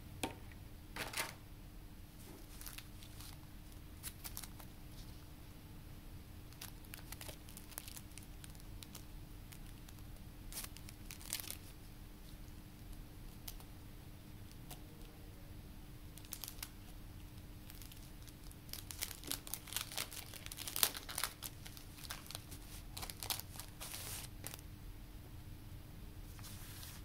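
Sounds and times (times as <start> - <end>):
paper rustling: 2.2 - 3.4, 17.7 - 24.6, 26.3 - 27.0
cellophane crinkling: 2.2 - 5.1, 6.5 - 11.8, 16.2 - 24.6.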